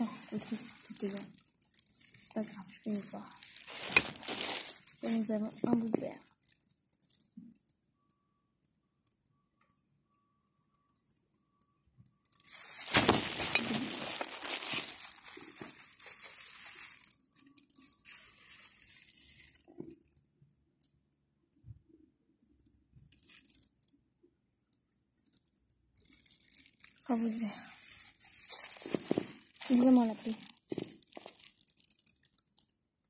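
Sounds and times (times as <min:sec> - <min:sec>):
plastic crinkling and rustling: 0:00.0 - 0:08.2, 0:12.0 - 0:21.0, 0:23.0 - 0:24.0, 0:24.6 - 0:32.8.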